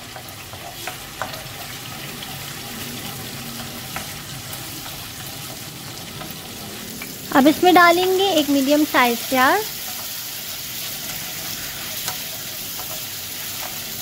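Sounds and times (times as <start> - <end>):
paste sizzling in hot oil: 0.0 - 14.0.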